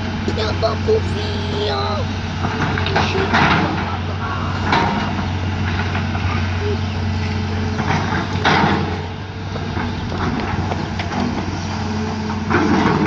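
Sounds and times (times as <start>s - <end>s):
engine running: 0.0s - 13.0s
knocks and clanks: 2.4s - 6.5s, 7.6s - 11.5s, 12.3s - 13.0s.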